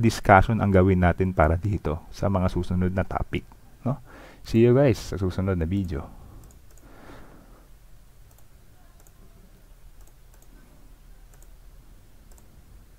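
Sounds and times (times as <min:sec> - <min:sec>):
low steady hum: 0:00.0 - 0:12.9
faint light clicks: 0:05.8 - 0:06.9, 0:12.2 - 0:12.5.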